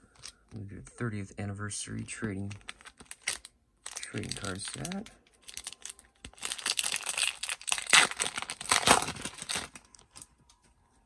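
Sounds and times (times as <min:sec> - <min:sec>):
foil wrapper tearing and crinkling: 0:02.4 - 0:10.3.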